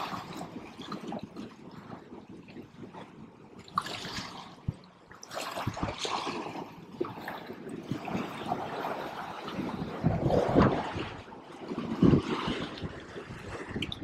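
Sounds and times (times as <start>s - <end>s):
small waves splashing against rocks: 0.0s - 14.0s.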